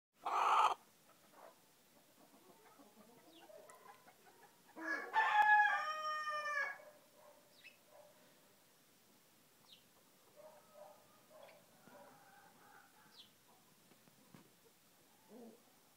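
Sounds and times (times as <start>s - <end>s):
rooster crowing: 4.8s - 6.8s, 10.6s - 13.2s.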